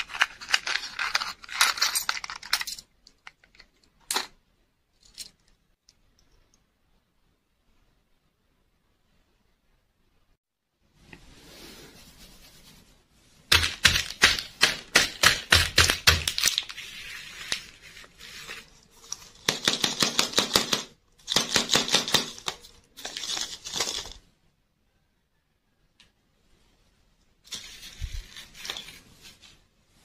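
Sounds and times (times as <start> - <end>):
plastic wrapping crinkling: 22.2 - 24.2.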